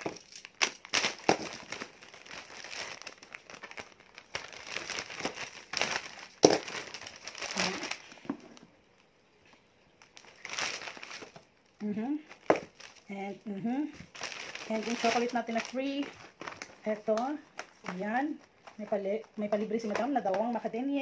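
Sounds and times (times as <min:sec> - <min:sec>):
plastic packaging crinkling: 0:00.0 - 0:21.0.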